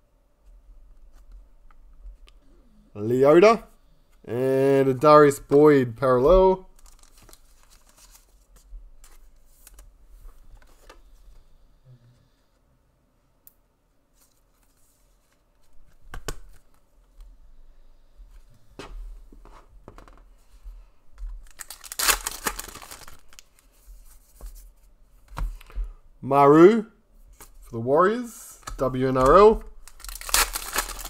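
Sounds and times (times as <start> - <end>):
foil wrappers tearing and crinkling: 6.8 - 8.3, 21.4 - 23.6, 29.8 - 31.0.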